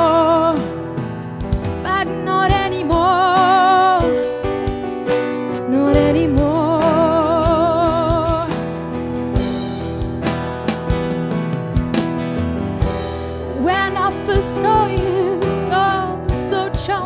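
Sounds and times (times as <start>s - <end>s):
woman singing with vibrato: 0.0s - 0.7s, 1.8s - 4.2s, 5.6s - 8.6s, 13.6s - 17.0s
acoustic guitar: 0.0s - 17.0s
keyboard: 0.0s - 17.0s.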